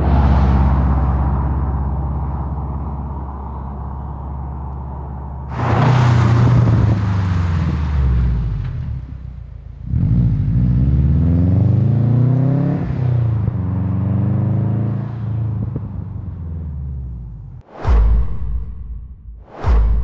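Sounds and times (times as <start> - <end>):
car engine accelerating past: 9.8 - 16.2.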